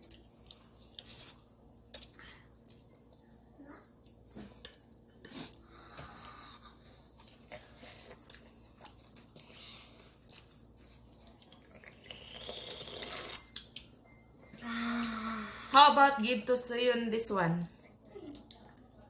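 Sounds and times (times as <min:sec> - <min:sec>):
slurping noodles: 0:11.8 - 0:13.5.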